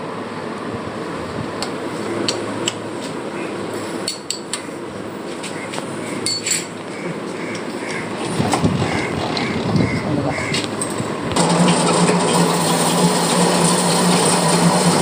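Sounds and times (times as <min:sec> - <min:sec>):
metallic clinks and knocks: 0:06.2 - 0:06.7
lathe humming: 0:11.0 - 0:15.0.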